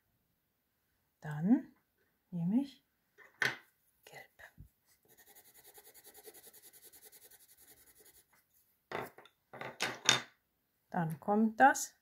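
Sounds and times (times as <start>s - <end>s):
pencil scribbling on paper: 4.9s - 8.4s.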